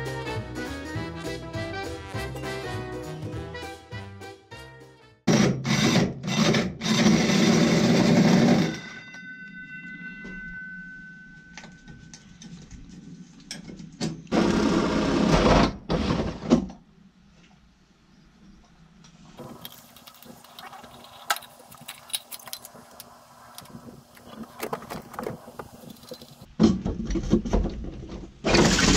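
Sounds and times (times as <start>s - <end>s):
power tool cutting holes: 5.3s - 8.9s, 14.3s - 16.4s, 28.4s - 28.9s
lingering ringing tone: 8.7s - 12.4s.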